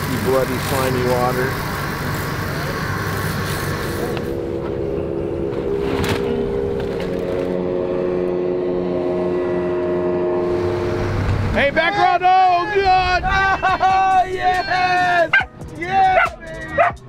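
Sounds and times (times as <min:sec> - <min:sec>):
water spraying from a hose: 0:00.0 - 0:04.4
outboard engine idling: 0:00.0 - 0:11.6.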